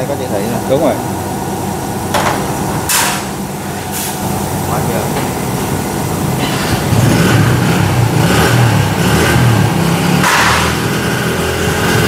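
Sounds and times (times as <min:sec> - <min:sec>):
motorbike engine revving: 0:06.3 - 0:12.0.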